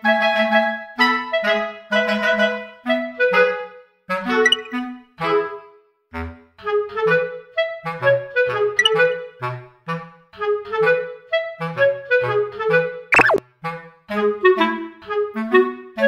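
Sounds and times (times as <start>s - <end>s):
woodwind-like melody with bass line: 2.4s - 4.8s, 6.7s - 16.0s
brief sharp sound: 13.2s - 13.4s.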